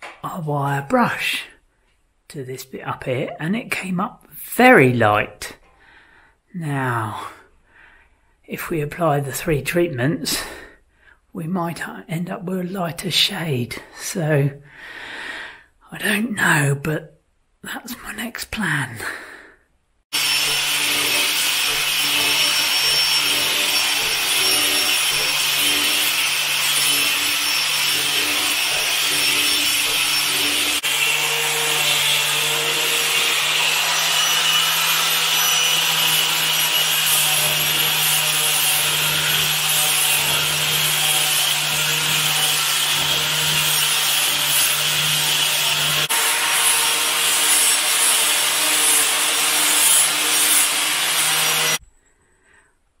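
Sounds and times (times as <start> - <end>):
angle grinder motor hum: 20.1 - 51.8
sanding disc rasping on wood: 20.1 - 51.8.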